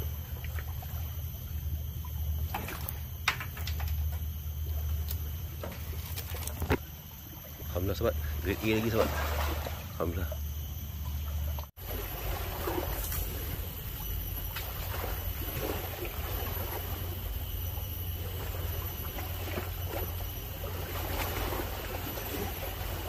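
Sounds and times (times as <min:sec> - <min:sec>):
faint water sounds: 0:00.0 - 0:23.0
steady low rumble: 0:07.6 - 0:23.0.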